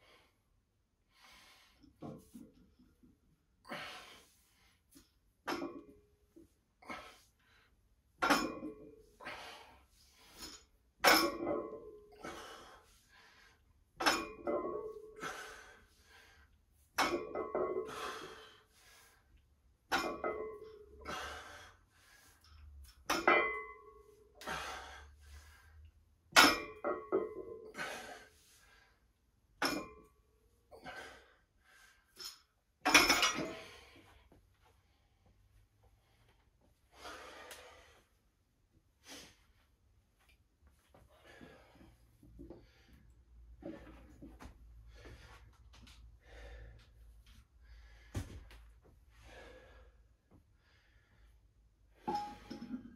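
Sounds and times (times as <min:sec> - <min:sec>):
heavy breathing: 0:12.1 - 0:13.7, 0:15.2 - 0:16.6, 0:17.8 - 0:19.3, 0:24.4 - 0:25.8, 0:36.9 - 0:38.2, 0:44.8 - 0:51.4.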